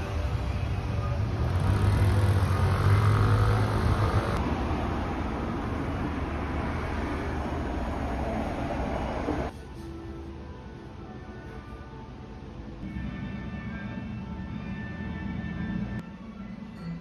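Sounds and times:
car passing with low rumble: 0.0 - 9.5
street hum: 0.0 - 16.4.

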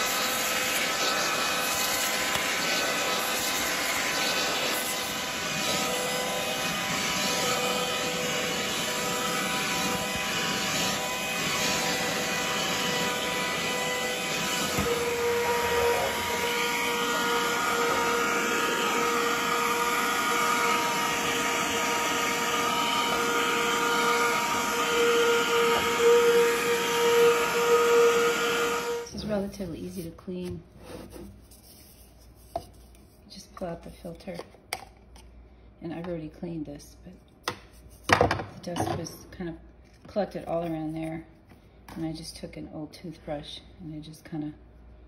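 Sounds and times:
handheld vacuum running: 0.0 - 30.1.

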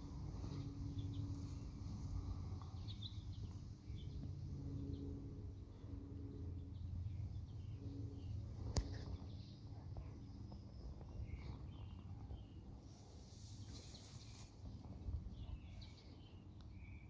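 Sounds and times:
faint bird chirps: 6.6 - 17.0.

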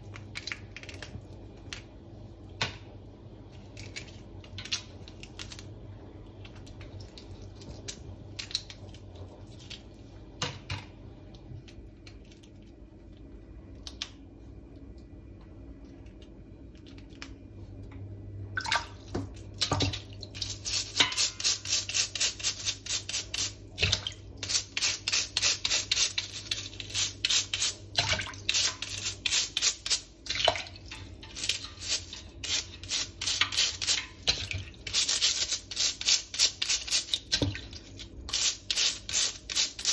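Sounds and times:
crab shell clicking and cracking: 0.1 - 1.9, 3.7 - 5.7, 13.8 - 14.2
brush scrubbing shell: 20.4 - 23.6, 24.4 - 27.8, 31.2 - 34.2, 34.8 - 37.2.

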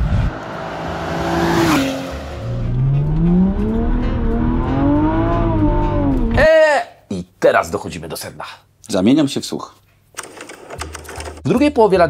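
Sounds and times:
car engine accelerating: 0.0 - 6.4.

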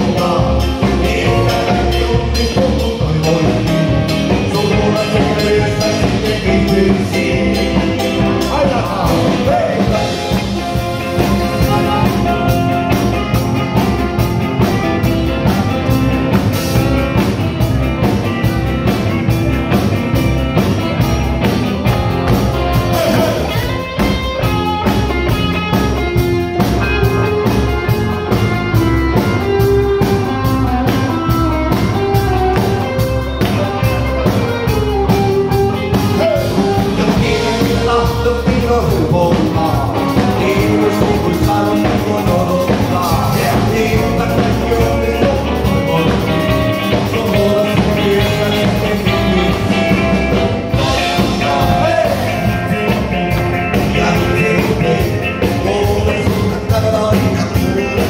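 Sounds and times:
men singing: 0.0 - 13.1, 22.7 - 23.6, 36.0 - 58.0
electric guitar: 0.0 - 58.0
steady drum beat: 0.0 - 58.0.

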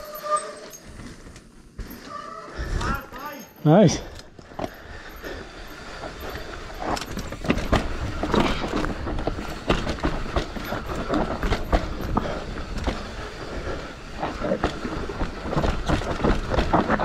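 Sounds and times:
bike tyres on dirt: 0.0 - 17.0
bike rattling and knocking: 4.4 - 17.0.

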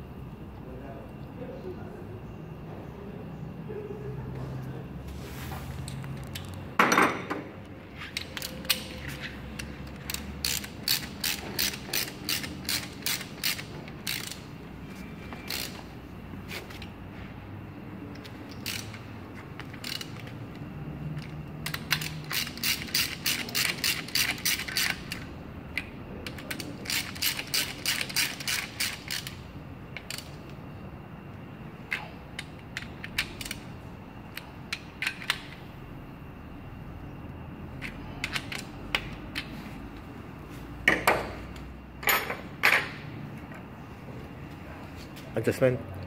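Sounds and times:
ratchet wrench clicking: 8.1 - 14.6, 15.4 - 15.9, 18.1 - 20.6, 21.2 - 30.5, 31.9 - 33.7, 34.3 - 35.6, 37.8 - 39.5.

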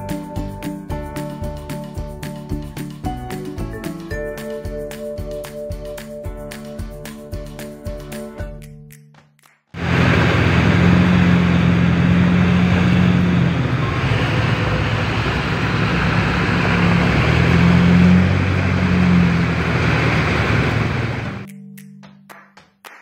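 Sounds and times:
vehicle engine humming: 9.8 - 21.5.

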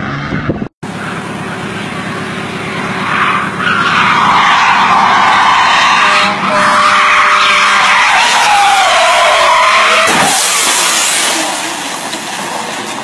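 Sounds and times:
car tyres squealing: 0.0 - 13.0
car crash impact: 10.0 - 13.0.

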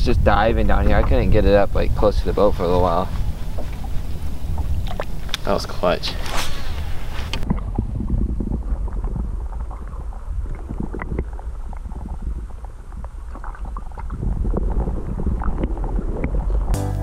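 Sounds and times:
underwater water rumble: 0.0 - 16.8.

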